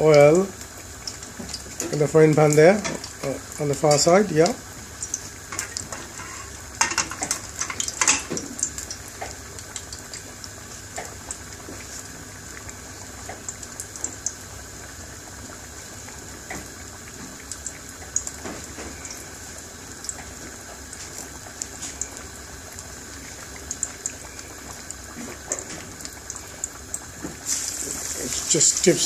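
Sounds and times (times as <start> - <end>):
pot boiling with bubbling pops: 0.0 - 29.0
steady hiss: 27.4 - 29.0.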